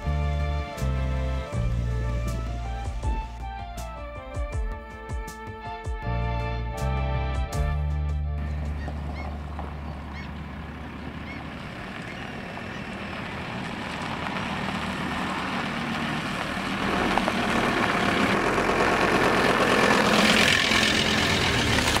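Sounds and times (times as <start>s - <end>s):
van engine running: 0.0s - 22.0s
tyres rolling on gravel: 8.6s - 22.0s.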